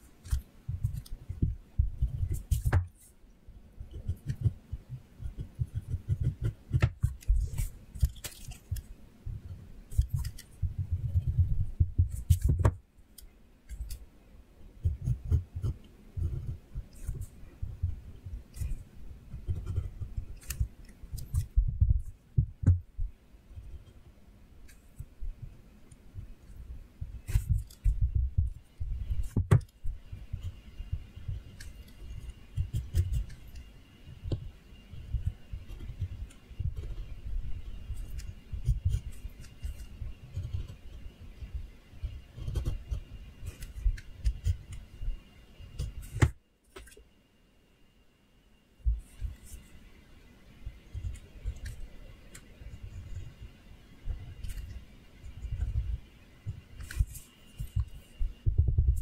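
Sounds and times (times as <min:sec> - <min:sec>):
pencil scratching on paper: 0:00.0 - 0:03.2, 0:03.9 - 0:08.9, 0:14.8 - 0:22.2, 0:27.2 - 0:44.9.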